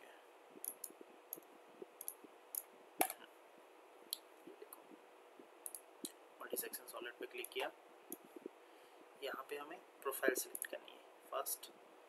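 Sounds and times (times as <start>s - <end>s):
faint room hiss: 0.0s - 12.0s
computer mouse clicking: 0.6s - 3.2s.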